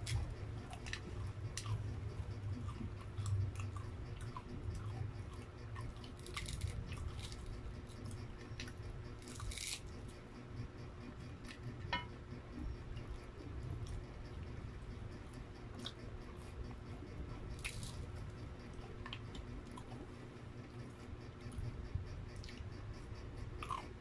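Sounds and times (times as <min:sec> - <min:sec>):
chewing crunches: 0:00.0 - 0:10.2, 0:15.3 - 0:20.1, 0:23.4 - 0:24.0
fried chicken tearing and crackling: 0:06.1 - 0:07.5, 0:09.2 - 0:09.9.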